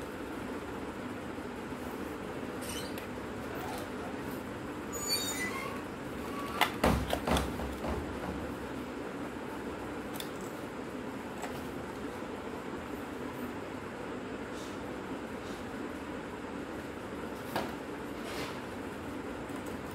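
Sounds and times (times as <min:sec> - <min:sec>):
steady background hum: 0:00.0 - 0:19.9
squeaky scrape on bench: 0:04.9 - 0:06.6.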